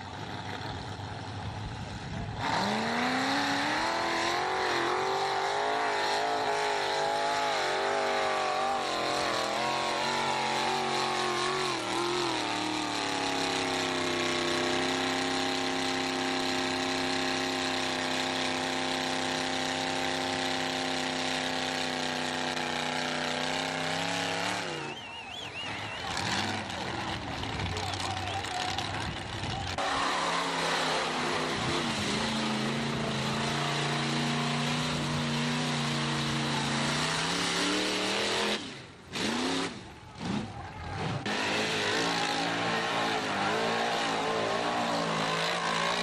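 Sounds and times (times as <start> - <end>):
truck engine at high revs: 0.0 - 46.0.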